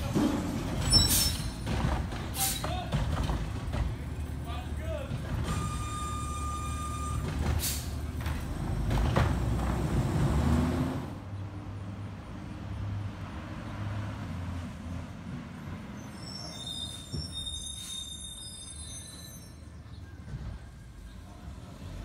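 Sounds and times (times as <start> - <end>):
brakes squealing: 0.0 - 10.0, 15.8 - 22.0
garbage truck engine: 0.0 - 11.3.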